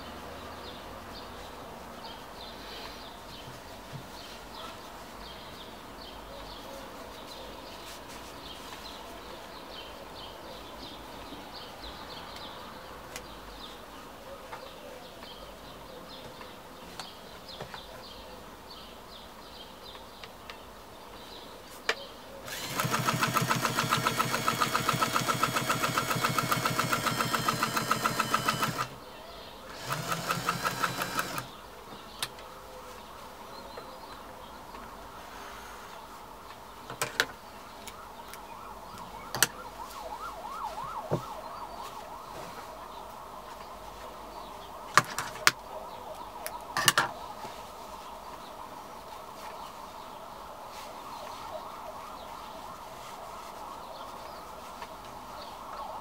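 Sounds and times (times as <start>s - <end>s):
sewing machine stitching: 22.5s - 28.9s, 29.7s - 31.6s.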